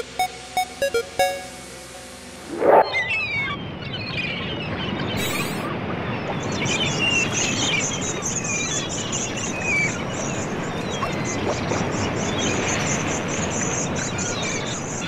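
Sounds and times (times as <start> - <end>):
high rapidly pulsing chirr: 0.0 - 3.2.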